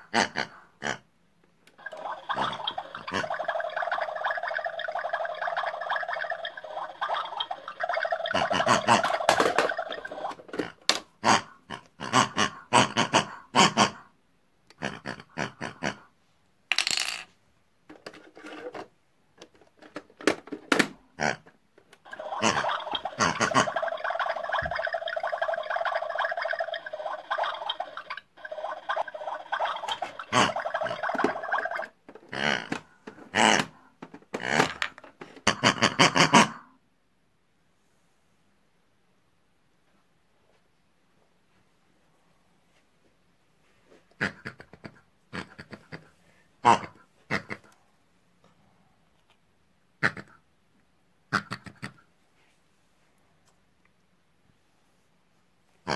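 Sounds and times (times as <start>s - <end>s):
plastic toy pieces clattering: 9.0s - 10.7s, 16.7s - 17.3s, 34.3s - 35.2s.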